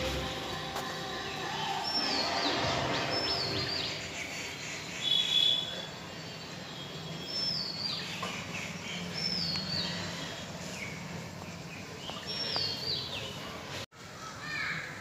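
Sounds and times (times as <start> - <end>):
bird whistled calls: 1.5 - 5.9.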